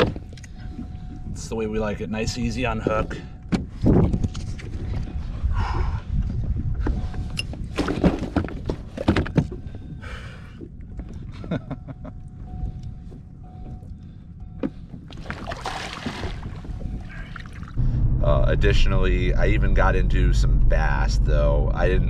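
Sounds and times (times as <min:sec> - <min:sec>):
fish thumping on plastic kayak: 0:07.8 - 0:09.6, 0:15.1 - 0:17.0
water splashing: 0:15.1 - 0:17.8.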